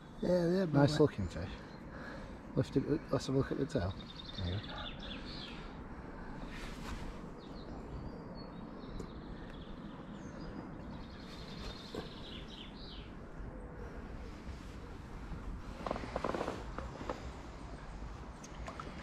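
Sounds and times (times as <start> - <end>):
small birds chirping and trilling: 0.0 - 14.9.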